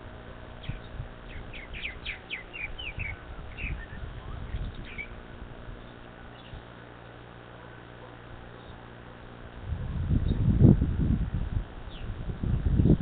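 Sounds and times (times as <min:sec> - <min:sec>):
birds chirping: 0:00.1 - 0:06.9, 0:07.5 - 0:09.4, 0:11.8 - 0:12.2.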